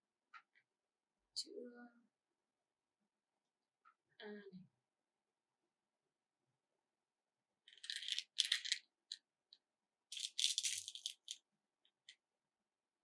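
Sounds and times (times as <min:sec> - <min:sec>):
plastic beads rattling in a tray: 0:07.7 - 0:08.8, 0:10.1 - 0:11.4.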